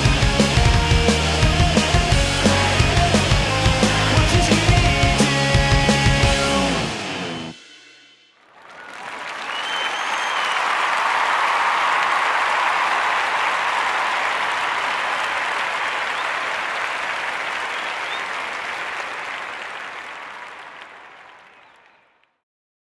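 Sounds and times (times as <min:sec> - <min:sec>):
applause: 0:08.4 - 0:22.4.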